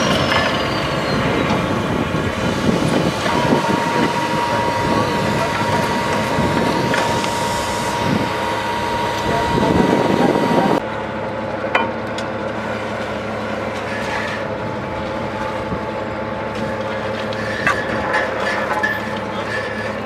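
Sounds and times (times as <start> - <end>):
loud rushing hiss: 0.0 - 10.8
drilling rig engine running: 0.0 - 20.0.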